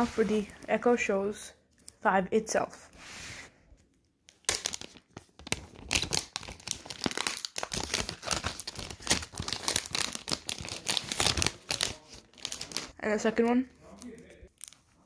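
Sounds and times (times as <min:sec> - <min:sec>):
plastic wrapping crinkling: 0:04.3 - 0:13.0, 0:13.8 - 0:15.0.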